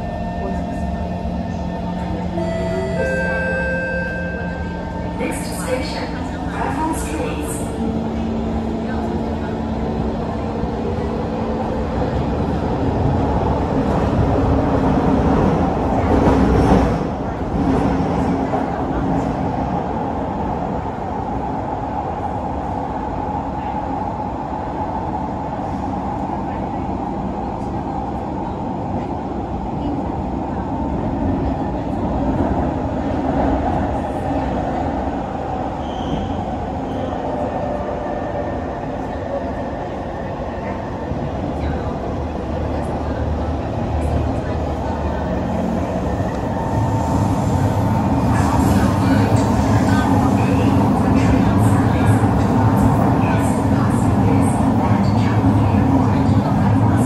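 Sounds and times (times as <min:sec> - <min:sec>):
train wheels rumbling in tunnel: 0:00.0 - 0:57.0
brief high squeal: 0:35.8 - 0:36.4.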